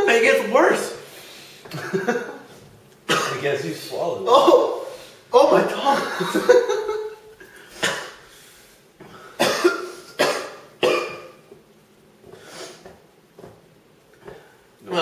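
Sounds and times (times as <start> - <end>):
man coughing: 3.1 - 3.5, 7.8 - 8.2, 9.2 - 11.4.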